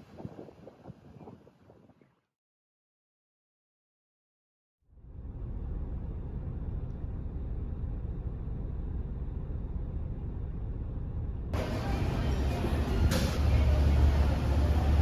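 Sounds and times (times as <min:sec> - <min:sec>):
road and engine noise inside car: 0:05.0 - 0:15.0.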